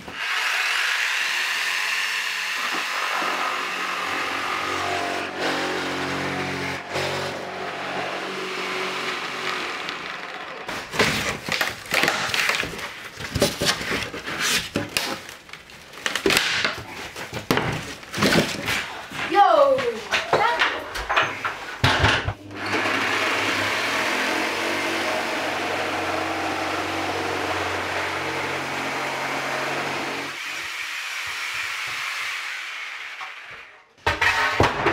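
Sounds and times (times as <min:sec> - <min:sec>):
power tool cutting wood: 0:00.0 - 0:12.6, 0:22.4 - 0:33.7
boards knocking and clattering: 0:16.0 - 0:22.4, 0:34.0 - 0:34.9.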